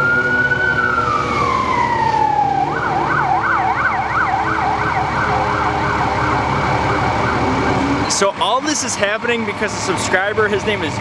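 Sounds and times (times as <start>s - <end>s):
electronic siren wailing and yelping: 0.0s - 8.1s.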